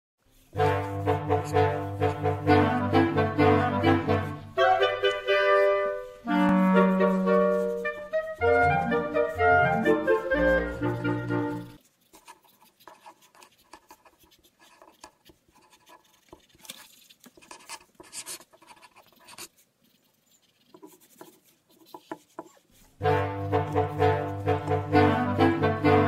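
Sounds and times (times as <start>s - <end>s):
pencil scratching on paper: 0.4s - 26.0s
clarinet music: 0.5s - 11.8s, 23.0s - 26.0s.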